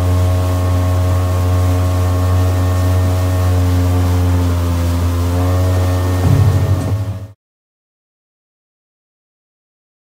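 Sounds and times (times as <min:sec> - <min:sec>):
water and wind noise: 0:00.0 - 0:07.3
boat motor droning: 0:00.0 - 0:07.4.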